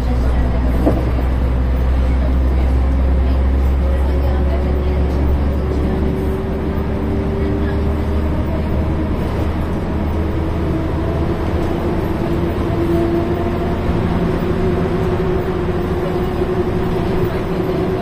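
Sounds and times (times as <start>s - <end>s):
bus engine drone: 0.0s - 18.0s.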